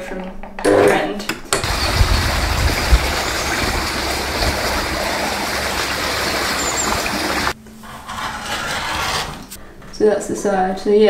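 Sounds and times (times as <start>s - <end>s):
stream water rushing: 1.6s - 7.6s.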